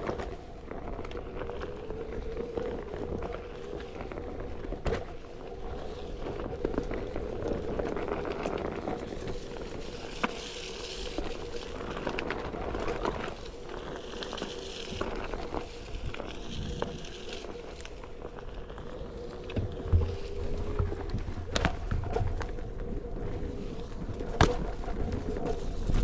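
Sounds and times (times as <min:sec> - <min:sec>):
tyre crackling over leaves and twigs: 0:00.0 - 0:26.0.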